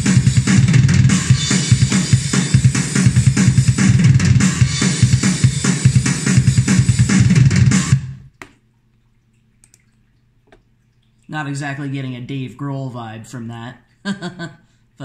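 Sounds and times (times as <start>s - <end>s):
fast drum groove: 0.0s - 8.1s.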